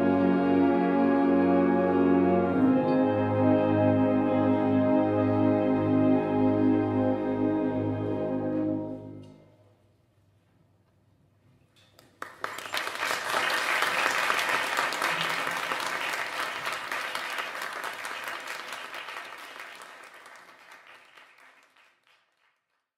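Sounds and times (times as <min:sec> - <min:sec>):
audience applause: 0:12.0 - 0:22.8.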